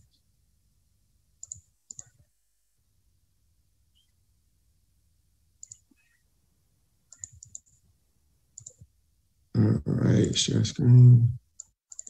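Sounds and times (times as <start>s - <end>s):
computer mouse clicks: 1.4s - 2.2s, 5.6s - 6.0s, 7.1s - 7.8s, 8.6s - 8.9s, 11.6s - 12.0s.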